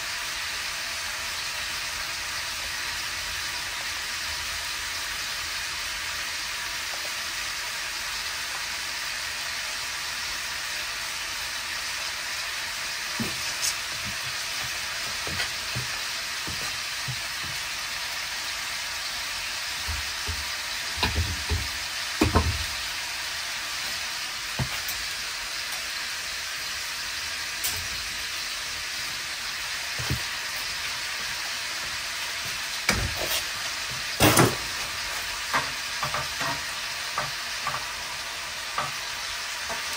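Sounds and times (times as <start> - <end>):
meat sizzling in a pan: 0.0 - 39.9
knocks: 21.0 - 22.7.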